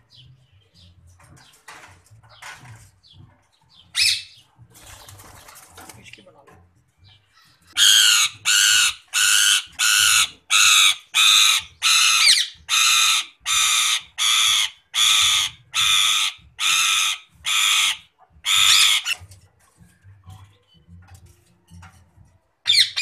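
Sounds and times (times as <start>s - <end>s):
parakeet calling loudly: 7.8s - 19.2s, 22.7s - 23.0s.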